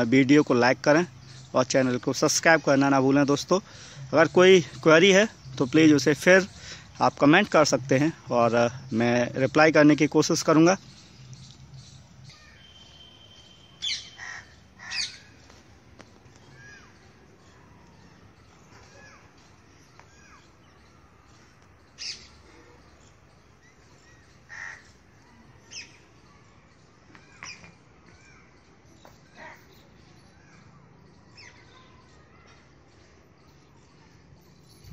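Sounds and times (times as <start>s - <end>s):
small birds chirping: 0.0s - 34.9s
crows cawing: 13.9s - 15.3s, 24.5s - 24.9s.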